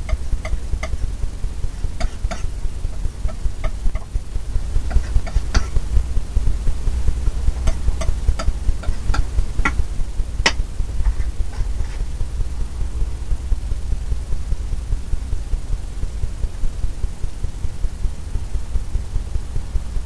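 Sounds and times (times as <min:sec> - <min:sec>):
painting tool tapping palette: 0:00.0 - 0:01.0, 0:02.0 - 0:04.2, 0:07.6 - 0:09.8
low rumble: 0:00.0 - 0:20.0.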